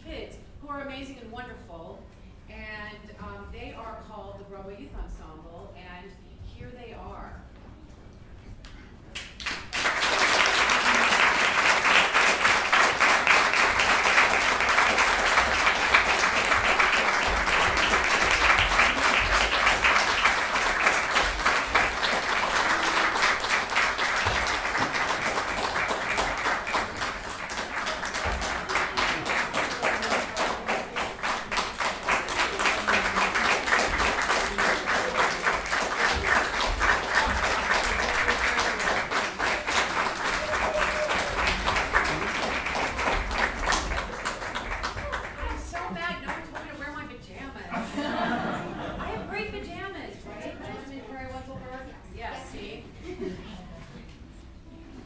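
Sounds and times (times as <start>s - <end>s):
audience applauding: 9.2s - 46.8s.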